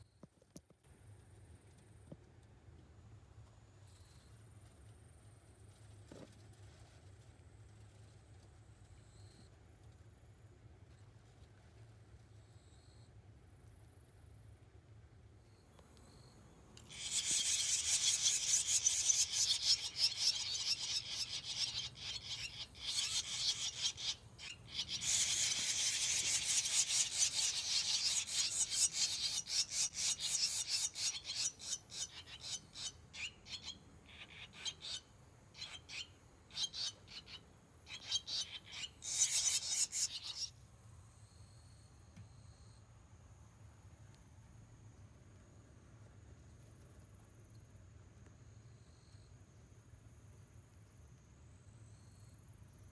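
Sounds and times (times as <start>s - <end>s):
nestlings chirping for food: 16.8s - 40.6s.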